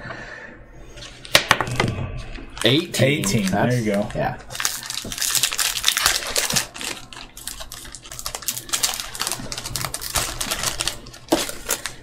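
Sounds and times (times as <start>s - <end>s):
cards and wrapping clicking: 2.6s - 12.0s.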